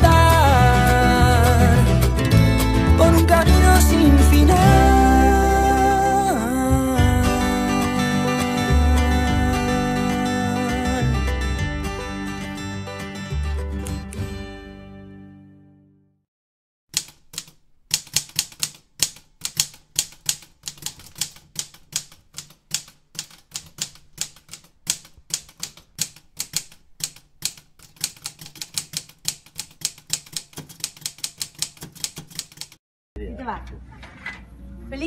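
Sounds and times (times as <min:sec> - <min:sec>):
typewriter keys clicking: 0:16.9 - 0:32.8.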